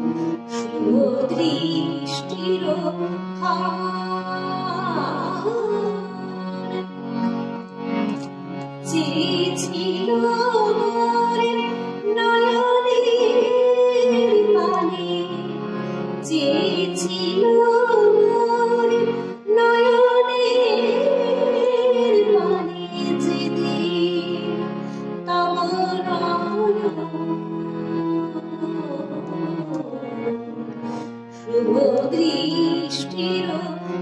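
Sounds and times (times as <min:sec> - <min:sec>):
woman singing slow melody: 0:31.5 - 0:33.8.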